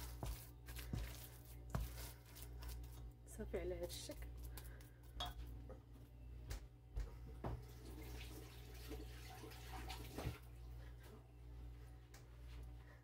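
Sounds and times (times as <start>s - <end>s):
steady low hum: 0.0s - 7.7s, 10.4s - 13.0s
faint water running at sink: 7.3s - 10.6s.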